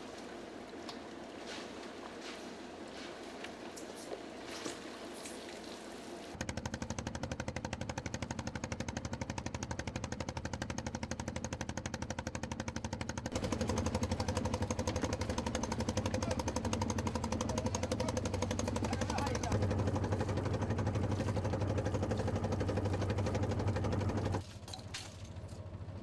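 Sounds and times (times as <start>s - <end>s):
boat engine knocking: 6.4s - 24.4s.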